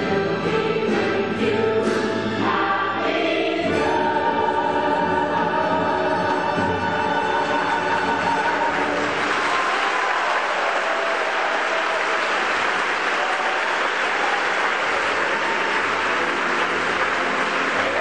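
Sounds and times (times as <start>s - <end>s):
faint orchestra playing: 0.0s - 18.0s
audience applauding: 7.4s - 18.0s.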